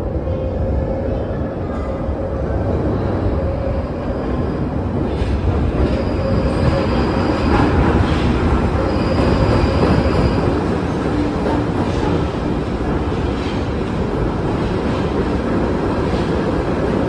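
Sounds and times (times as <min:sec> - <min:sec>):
train wheels rumbling on rails: 0:00.0 - 0:17.0
high-pitched train squeal: 0:05.8 - 0:10.9.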